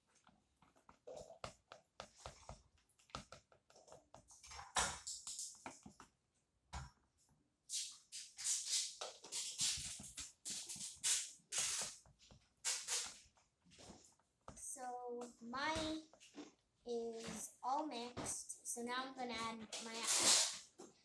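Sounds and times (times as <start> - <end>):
sticky glue squishing: 7.7 - 12.0.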